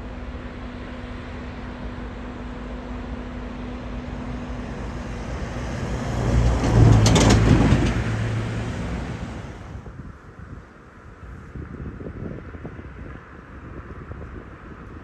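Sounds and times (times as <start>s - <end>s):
diesel engine running: 0.0s - 9.9s.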